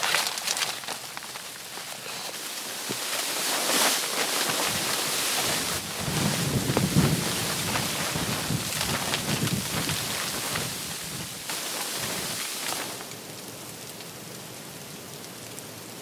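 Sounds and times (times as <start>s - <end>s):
plastic sheeting rustling: 0.0s - 13.2s
wind buffeting microphone: 4.2s - 13.1s.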